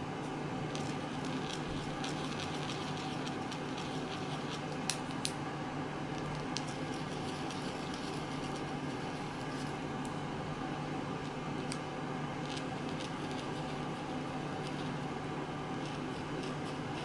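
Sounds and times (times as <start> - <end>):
low hum with fan-like hiss: 0.0 - 17.0.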